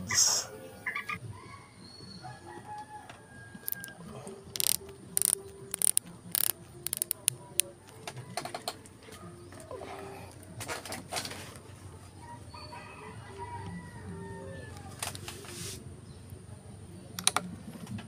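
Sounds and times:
chickens clucking: 0:00.0 - 0:15.2
rooster crowing: 0:00.8 - 0:04.7, 0:12.2 - 0:15.0
sharp clicks: 0:03.6 - 0:08.9, 0:17.2 - 0:17.5.

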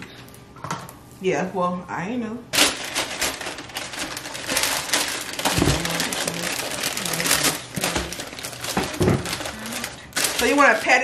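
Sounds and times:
foil pan rustling: 0:02.5 - 0:11.0
parchment paper crinkling: 0:02.5 - 0:11.0.

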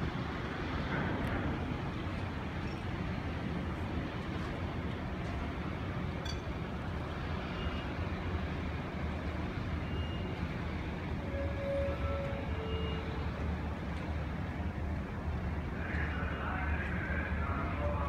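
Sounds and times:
low harbour rumble: 0:00.0 - 0:18.0.

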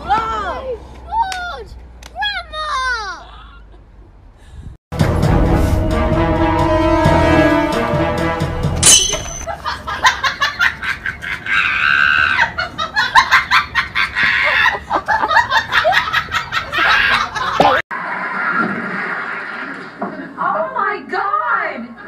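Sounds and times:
cackling laughter: 0:09.5 - 0:17.8.

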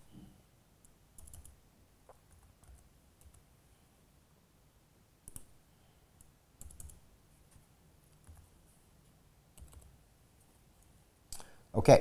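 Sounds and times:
laptop keyboard keystrokes: 0:00.8 - 0:03.4, 0:05.2 - 0:05.5, 0:06.2 - 0:07.0, 0:08.1 - 0:08.5, 0:09.5 - 0:10.0.

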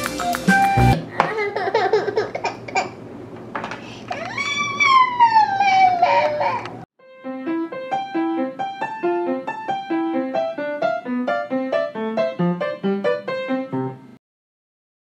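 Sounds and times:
keyboard music jingle: 0:00.0 - 0:01.0, 0:07.0 - 0:14.0.

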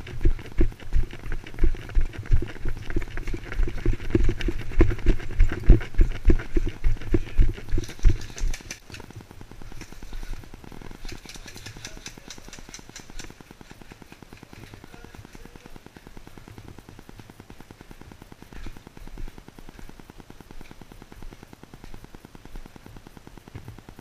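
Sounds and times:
footsteps on gravel: 0:00.0 - 0:08.8
fine ticking buzz: 0:00.0 - 0:24.0.

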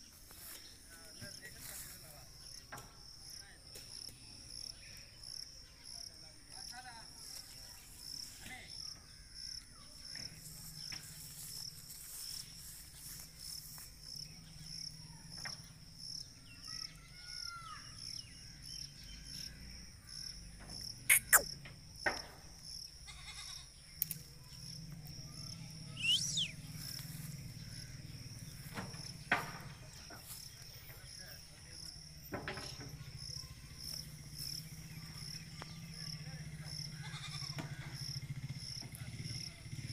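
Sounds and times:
insects trilling: 0:00.0 - 0:39.9
short high call: 0:21.1 - 0:21.5, 0:26.0 - 0:26.6.

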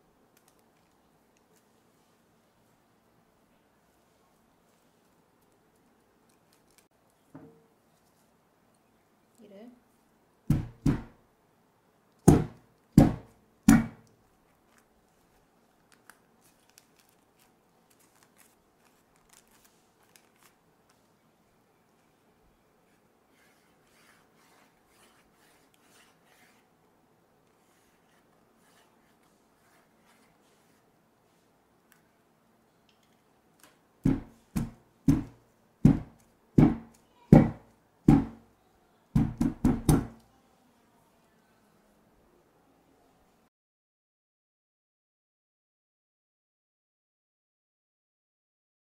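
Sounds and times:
parchment paper crinkling: 0:05.4 - 0:06.9, 0:14.5 - 0:21.1.

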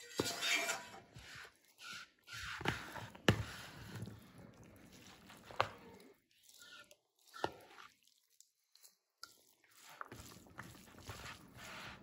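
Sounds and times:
utensil scraping a skillet: 0:00.0 - 0:04.2, 0:06.4 - 0:07.9, 0:09.2 - 0:12.0
food tossing in a bowl: 0:00.0 - 0:12.0.

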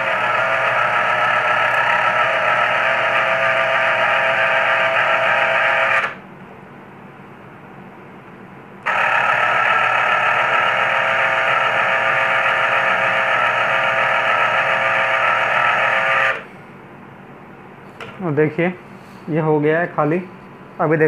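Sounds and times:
electric juicer motor whining: 0:00.0 - 0:06.2, 0:08.8 - 0:16.5.

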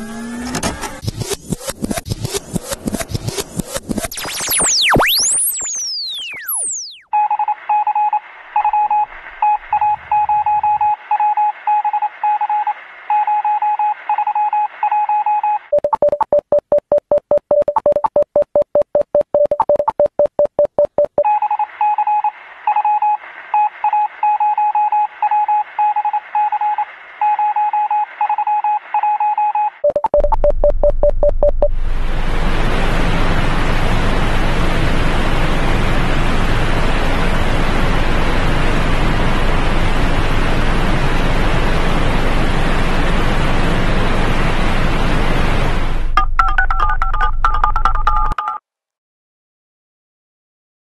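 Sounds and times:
falling electronic sweeps: 0:01.0 - 0:07.1
telephone line beeping: 0:05.5 - 0:23.2, 0:28.4 - 0:31.7, 0:46.2 - 0:48.6.

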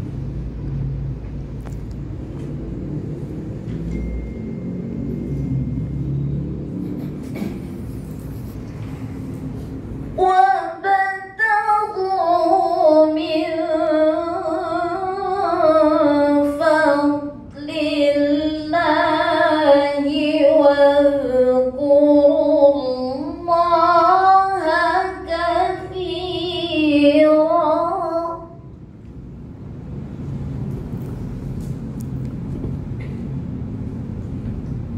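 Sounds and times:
woman reciting melodically: 0:10.1 - 0:28.7.

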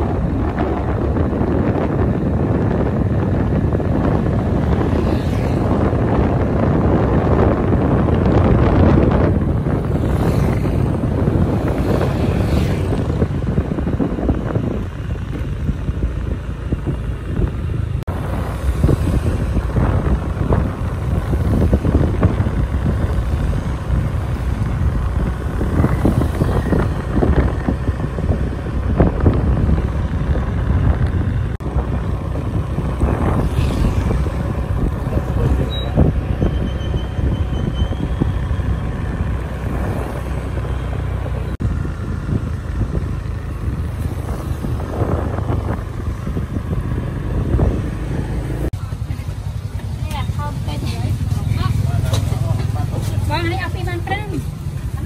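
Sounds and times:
road vehicle rumble: 0:00.0 - 0:55.0.

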